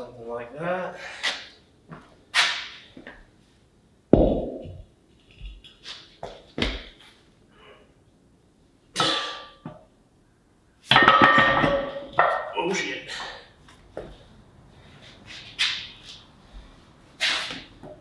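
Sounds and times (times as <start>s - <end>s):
heavy thud on concrete: 4.1s - 4.8s
heavy steel parts clanking: 10.9s - 13.2s.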